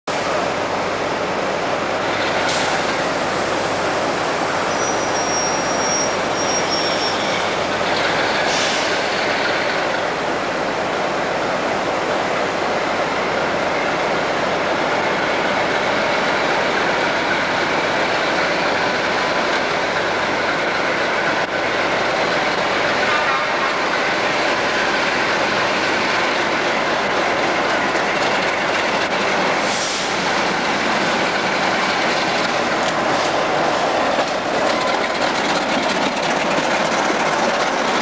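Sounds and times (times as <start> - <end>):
diesel locomotive engine running: 0.1 - 38.0
thin high squeal: 4.7 - 7.4.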